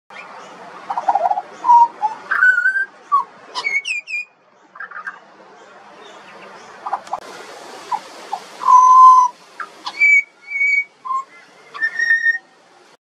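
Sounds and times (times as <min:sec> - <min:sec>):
bird singing: 0:00.1 - 0:07.2, 0:07.9 - 0:12.5.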